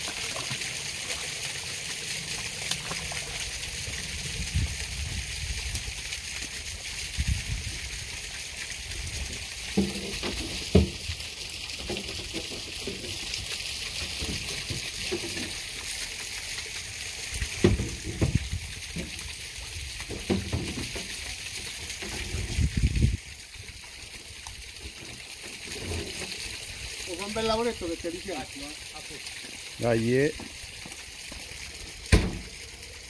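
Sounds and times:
running water splashing: 0.0s - 33.0s
dull knocks and thumps: 17.6s - 18.4s, 32.1s - 32.5s.

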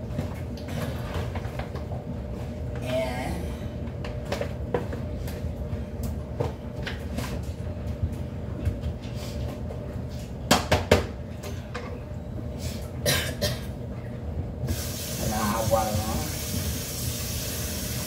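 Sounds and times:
dishes knocking and clattering: 10.5s - 12.0s.

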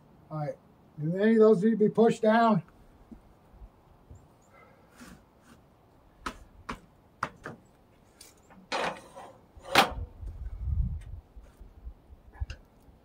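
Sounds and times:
board scraping on steel: 8.7s - 10.1s.

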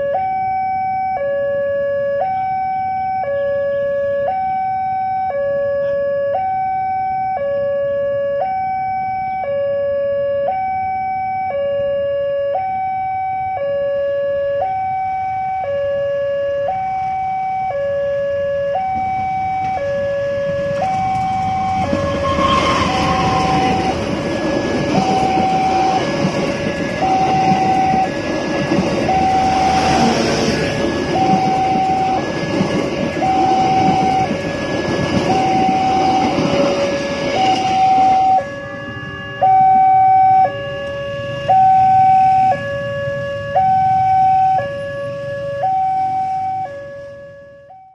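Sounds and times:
two-tone electronic warning alarm: 0.0s - 47.9s
train passing close by: 18.4s - 47.2s.

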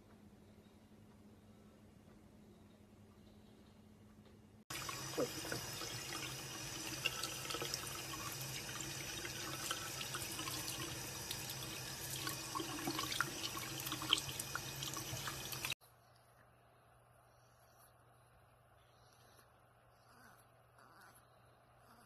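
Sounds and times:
water running into a sink: 4.7s - 15.8s
water splashing and dripping: 4.7s - 15.8s.

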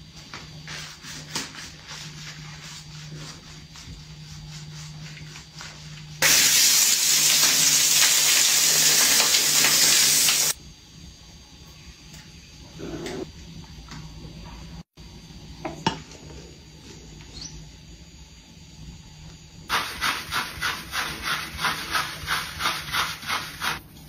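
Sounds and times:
hands working soap lather: 0.2s - 10.6s, 19.7s - 23.8s
shower head spraying water: 6.2s - 10.6s.

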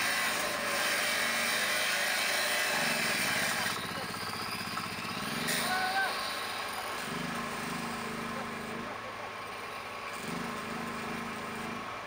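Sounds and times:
angle grinder running: 0.0s - 12.0s
man calling out: 5.6s - 6.2s.

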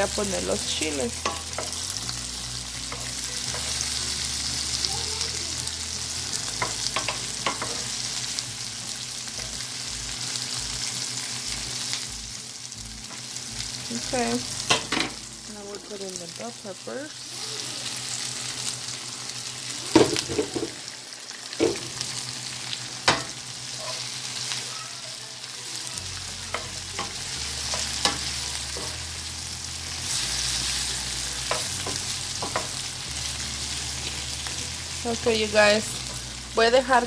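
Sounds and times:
vegetables sizzling in oil: 0.0s - 37.0s
wooden spoon knocking a pan: 19.9s - 20.8s.

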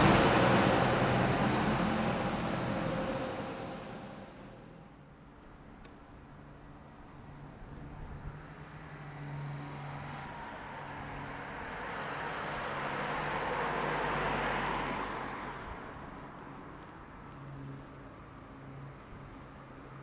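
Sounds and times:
vehicle passing: 0.0s - 4.9s, 8.1s - 20.0s.

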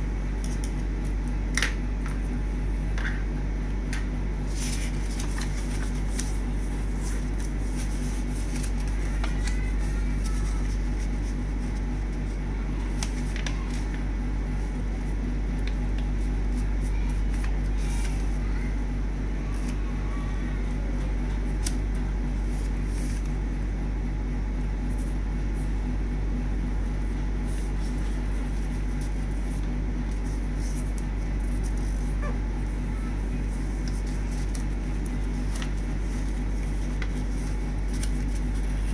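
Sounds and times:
steady low hum: 0.0s - 38.9s
paper being folded and creased: 4.4s - 14.0s, 15.5s - 18.4s, 19.5s - 19.9s, 21.3s - 23.3s, 27.1s - 38.9s.

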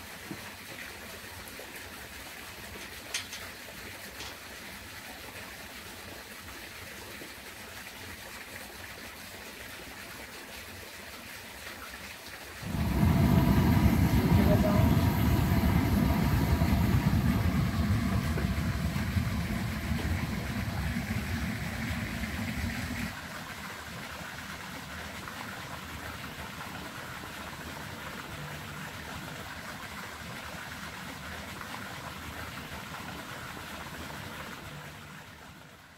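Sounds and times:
fountain water splashing into pool: 0.0s - 35.9s
gas burner flame rumbling: 12.6s - 23.2s.

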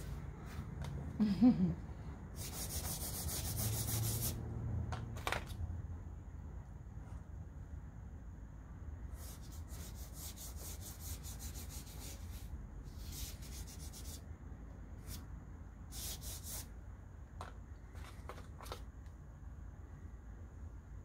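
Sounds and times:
pastel scratching across paper: 2.4s - 4.4s, 9.1s - 14.2s, 15.9s - 16.7s.

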